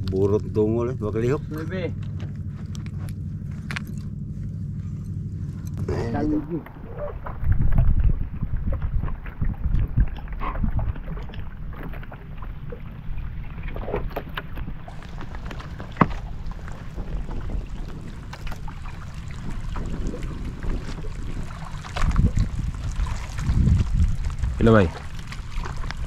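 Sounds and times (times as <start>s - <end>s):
wind buffeting microphone: 5.3s - 26.0s
knocks on boat: 13.8s - 17.5s.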